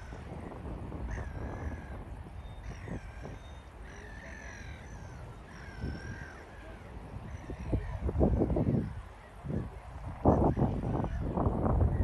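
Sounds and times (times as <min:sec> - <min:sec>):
gulls calling: 0:00.0 - 0:12.0.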